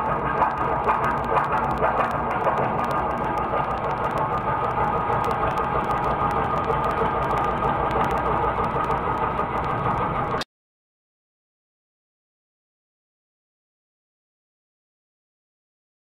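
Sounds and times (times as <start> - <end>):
lathe motor hum: 0.0 - 10.4.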